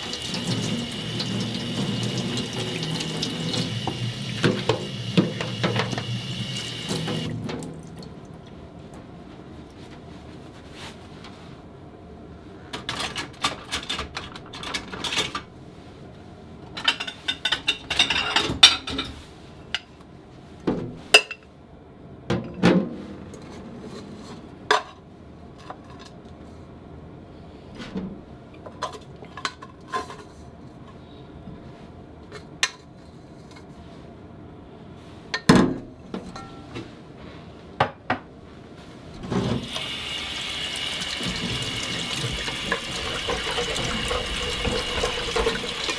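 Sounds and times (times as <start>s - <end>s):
tap water running: 0.0s - 8.1s, 39.6s - 45.9s
water splashing: 40.8s - 45.9s.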